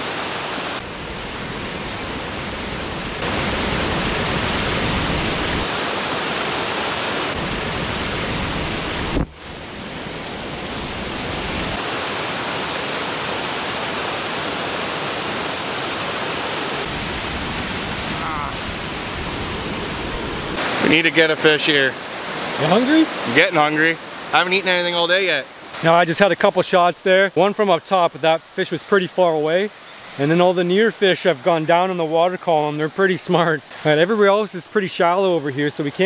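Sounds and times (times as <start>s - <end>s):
water rushing over weir: 0.0s - 36.0s.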